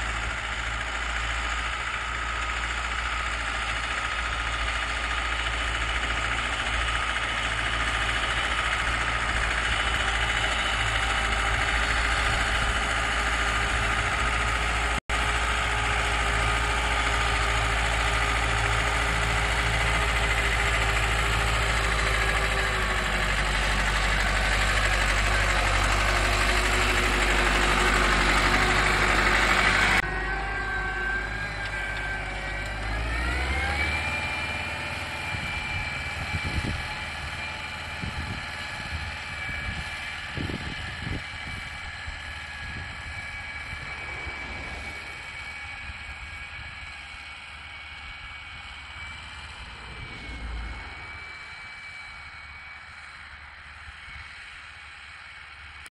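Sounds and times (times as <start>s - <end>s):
engine revving to a whine: 0.0s - 55.9s
tractor diesel engine under load: 0.0s - 55.9s.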